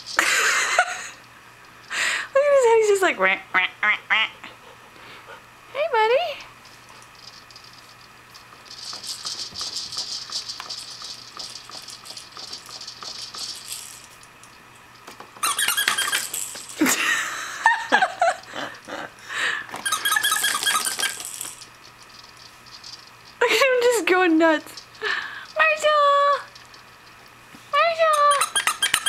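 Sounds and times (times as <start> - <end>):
plastic toys rattling: 6.6 - 17.1, 19.7 - 27.3, 27.9 - 29.0
short high squeaks: 15.4 - 16.3, 19.8 - 21.2, 28.2 - 29.0.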